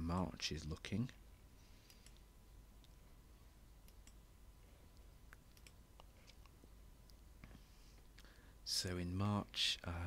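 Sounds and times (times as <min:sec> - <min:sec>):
faint computer mouse clicks: 0:01.9 - 0:03.0, 0:05.0 - 0:06.6.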